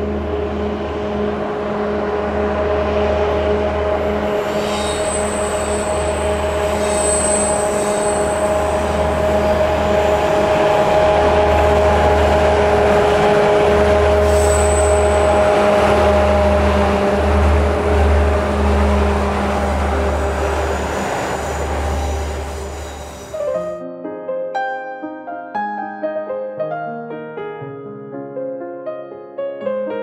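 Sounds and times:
diesel locomotive engine drone: 0.0 - 23.4.

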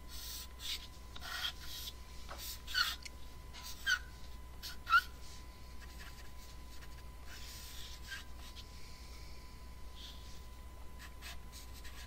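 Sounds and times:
pencil scratching on paper: 0.1 - 3.0, 5.8 - 8.6, 11.0 - 12.0.

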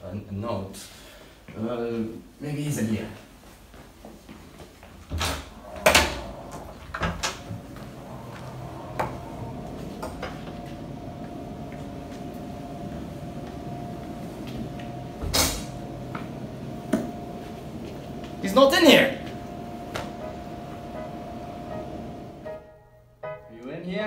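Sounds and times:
steady low hum: 4.5 - 22.8.

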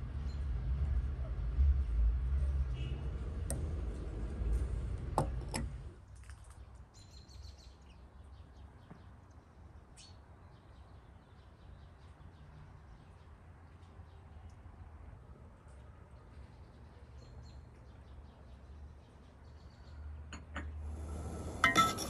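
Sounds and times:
small birds chirping: 6.5 - 14.6.

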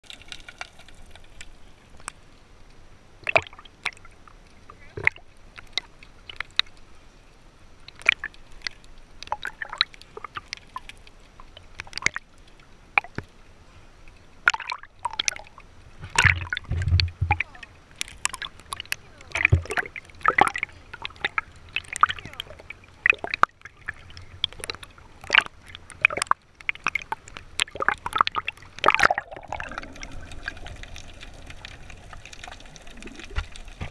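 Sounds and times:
water splashing against camera: 14.4 - 33.9.

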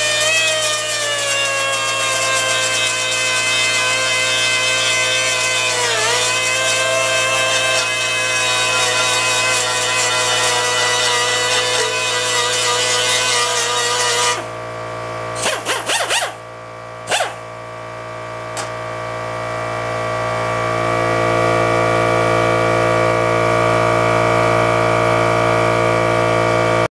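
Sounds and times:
pneumatic die grinder whining: 0.0 - 14.6, 15.4 - 16.5, 17.1 - 17.5.

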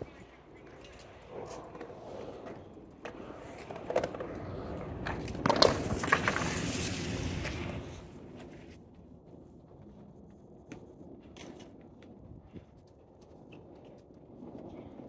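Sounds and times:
skateboard wheels rolling on concrete: 0.0 - 15.0
skateboard clacking on concrete: 0.2 - 8.5.

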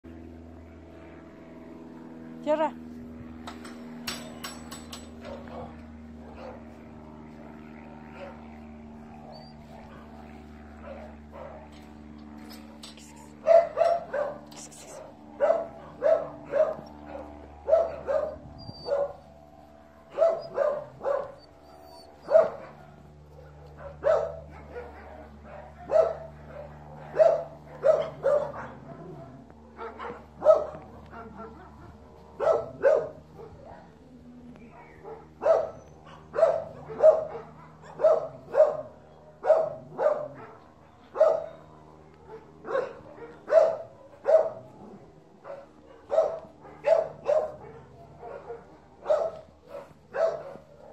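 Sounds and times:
dog barking: 5.3 - 6.6, 8.1 - 8.5, 10.8 - 11.7, 13.4 - 14.5, 15.4 - 19.2, 20.1 - 21.4, 22.2 - 29.2, 29.8 - 31.8, 32.4 - 33.9, 34.7 - 40.6, 41.2 - 41.6, 42.3 - 44.7, 45.4 - 50.9.

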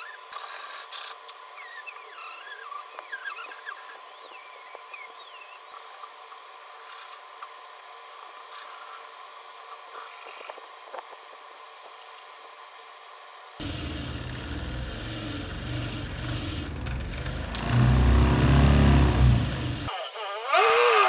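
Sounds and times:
metal rubbing and scraping: 13.6 - 19.9
metal vise squealing: 14.0 - 19.9.

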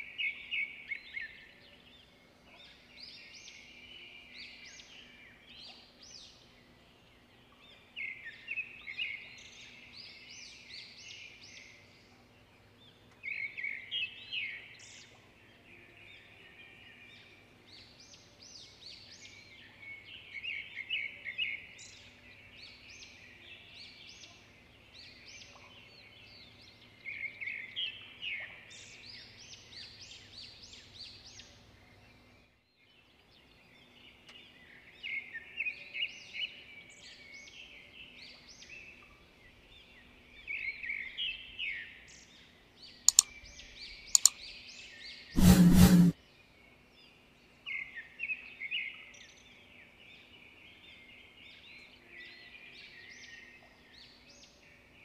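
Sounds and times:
small birds chirping: 36.6 - 46.2
sharp clicks: 43.1 - 43.3, 44.2 - 44.4.

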